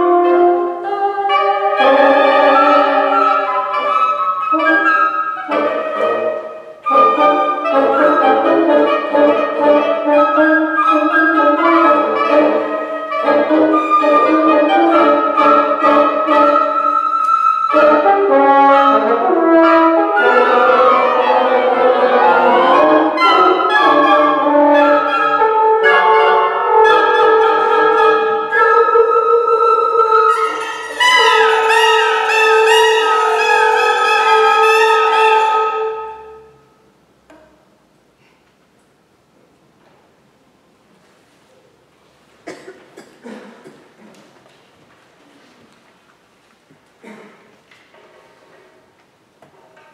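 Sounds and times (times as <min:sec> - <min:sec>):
woodwind quintet playing: 0:00.0 - 0:36.8.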